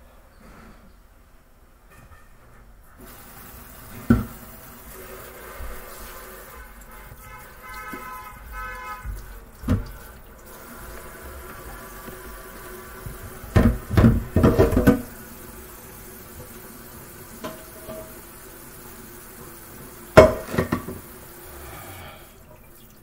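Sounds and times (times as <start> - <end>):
tap running water into sink: 3.0 - 21.5
pot knocking against sink: 13.5 - 15.1, 17.4 - 18.2, 20.2 - 21.1.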